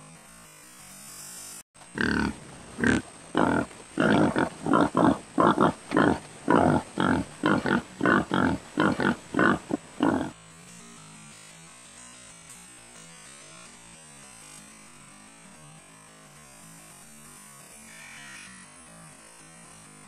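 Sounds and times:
wild pig grunting: 1.9s - 10.4s.

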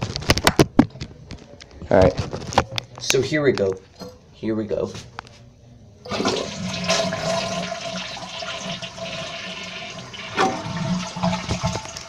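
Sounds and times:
toilet flushing: 6.1s - 12.0s.

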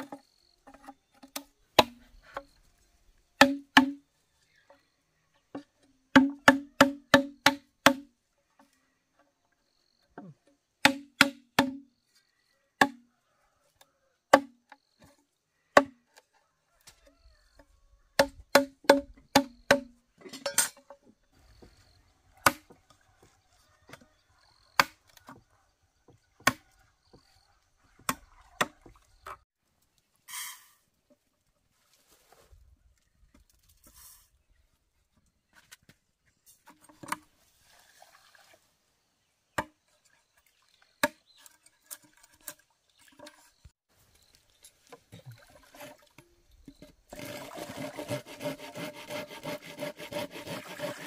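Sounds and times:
machete chopping bamboo: 1.2s - 2.5s, 3.4s - 4.0s, 6.1s - 8.1s, 10.8s - 11.9s, 12.8s - 13.0s, 14.3s - 14.6s, 18.2s - 20.0s, 22.4s - 22.8s, 26.4s - 26.6s.

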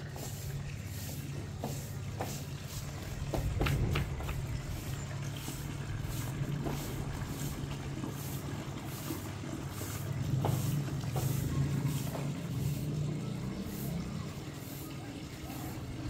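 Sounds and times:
broom sweeping tiles: 0.0s - 16.0s
steady low rumble: 2.8s - 8.2s.

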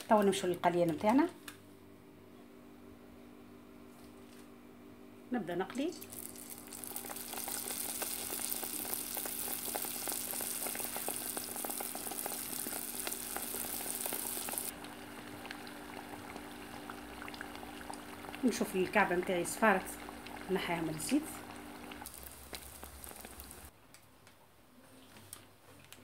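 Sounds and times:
dough deep-frying in oil: 5.9s - 23.7s.

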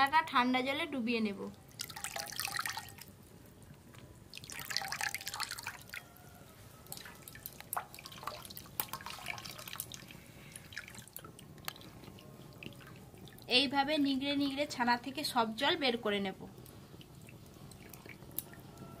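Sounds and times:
water splashing: 1.7s - 3.1s, 4.3s - 6.0s, 6.9s - 13.6s, 17.0s - 18.6s
water sloshing: 6.8s - 13.5s, 17.0s - 18.6s.

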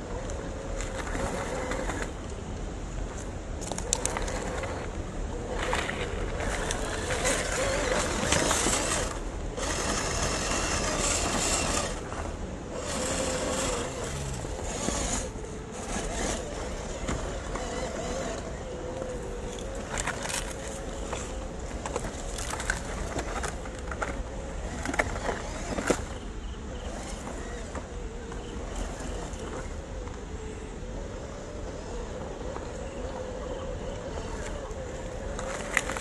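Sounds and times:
toy car motor whining: 0.1s - 2.2s, 3.6s - 36.0s
tyres crunching on gravel: 3.0s - 29.8s.

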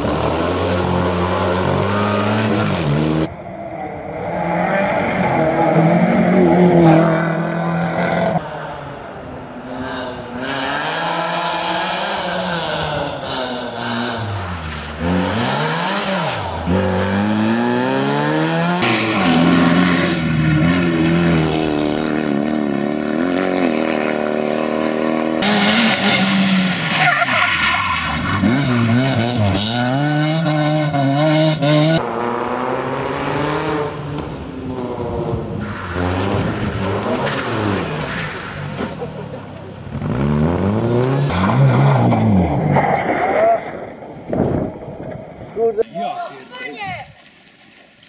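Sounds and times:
rally car engines revving: 0.0s - 45.8s
tyre squeal: 25.4s - 29.1s.

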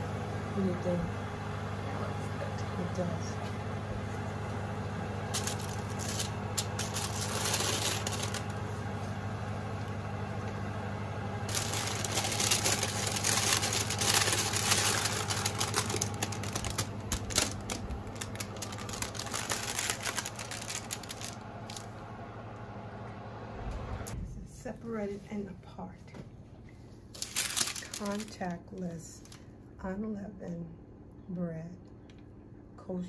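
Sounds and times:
steady low hum: 0.0s - 33.0s
parchment paper rustling and crackling: 5.3s - 8.8s, 11.5s - 21.9s, 27.0s - 29.5s.

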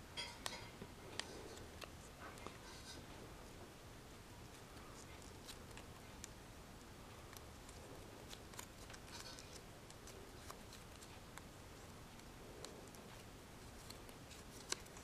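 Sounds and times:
paper crinkling and rustling: 7.4s - 15.0s.

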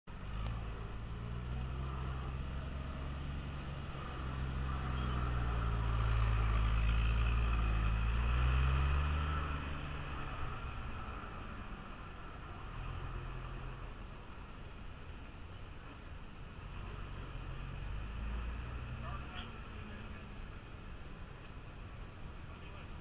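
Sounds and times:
forklift engine driving past: 0.1s - 14.3s.

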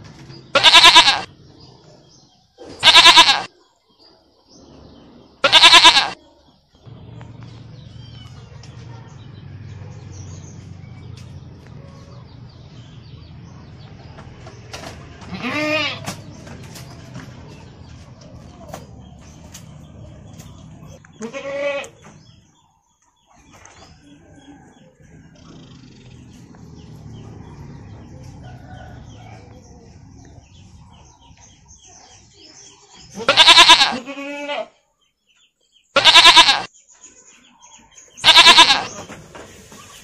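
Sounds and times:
animal bleating: 0.5s - 1.3s, 2.8s - 3.5s, 5.4s - 6.2s, 15.3s - 16.0s, 21.0s - 22.0s, 33.2s - 34.8s, 36.0s - 36.7s, 38.2s - 39.1s.

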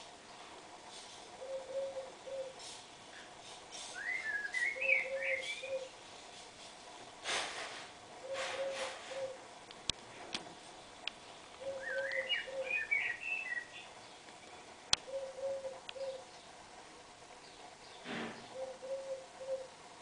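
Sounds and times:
dove cooing: 1.4s - 2.8s, 4.0s - 6.0s, 8.2s - 9.5s, 11.6s - 13.7s, 15.0s - 16.3s, 18.1s - 19.8s
songbird chirps: 1.4s - 6.3s, 10.8s - 19.8s.

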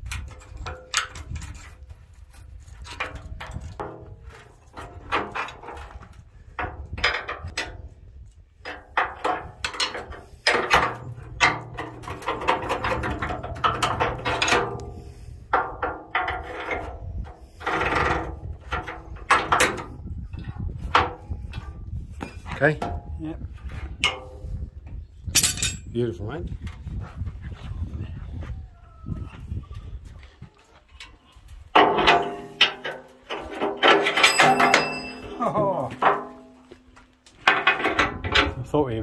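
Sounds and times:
hand tools knocking and clanking: 8.6s - 14.9s, 15.5s - 23.1s, 31.7s - 38.6s
metal strikes ringing: 34.1s - 36.6s.

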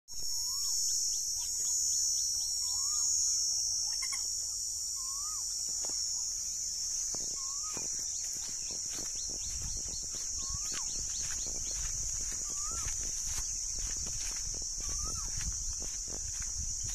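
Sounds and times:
high-pitched insect drone: 0.1s - 16.9s
bird whistling up and down: 0.3s - 4.2s, 4.9s - 5.6s, 7.2s - 13.8s, 14.8s - 15.4s
birds chirping: 0.4s - 16.9s.

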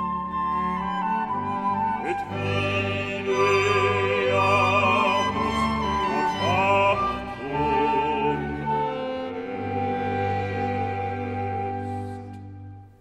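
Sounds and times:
string ensemble playing: 0.0s - 13.0s
man singing operatically: 2.0s - 9.0s.

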